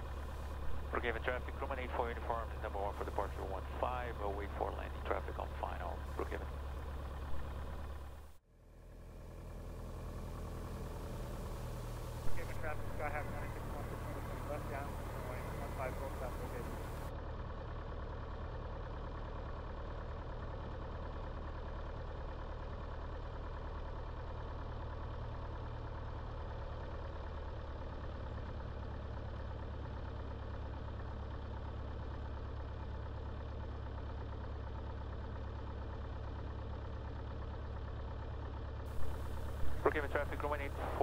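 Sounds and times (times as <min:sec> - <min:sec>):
propeller airplane engine idling: 0:00.0 - 0:41.0.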